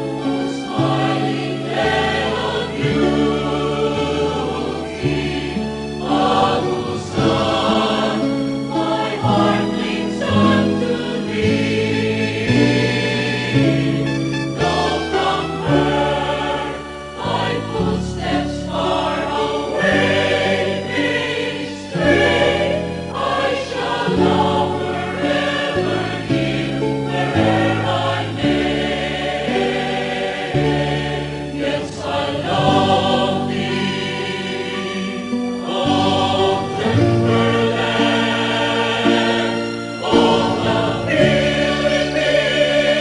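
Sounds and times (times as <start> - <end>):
choir singing slow chords: 0.0 - 43.0.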